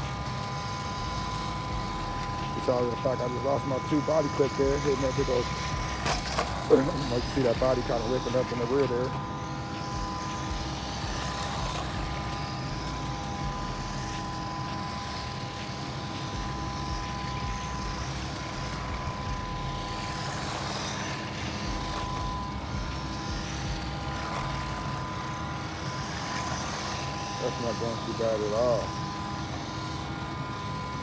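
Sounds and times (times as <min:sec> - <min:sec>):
rc truck motor whine: 0:00.0 - 0:31.0
steady mechanical hum: 0:00.0 - 0:31.0
tyre noise on concrete: 0:05.7 - 0:07.0.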